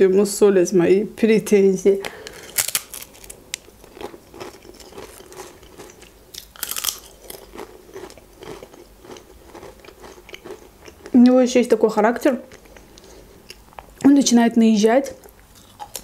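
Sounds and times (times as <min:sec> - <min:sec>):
potato crisps crunching: 0:02.1 - 0:11.2, 0:15.6 - 0:16.0.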